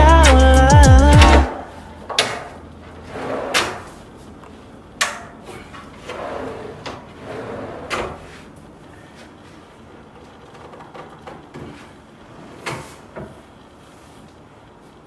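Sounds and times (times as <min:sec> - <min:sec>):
wooden drawers sliding on metal runners: 0:03.0 - 0:04.0, 0:05.5 - 0:08.5.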